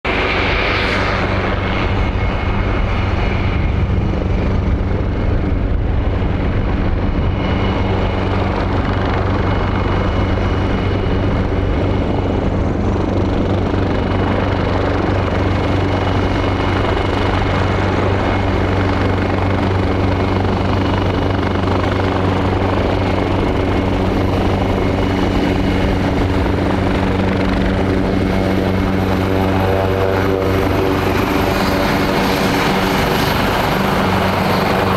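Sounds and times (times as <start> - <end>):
helicopter engines: 0.0 - 34.9
helicopter rotor beating: 0.1 - 34.9
high whine: 0.1 - 34.9
buzzy tone: 28.6 - 32.8.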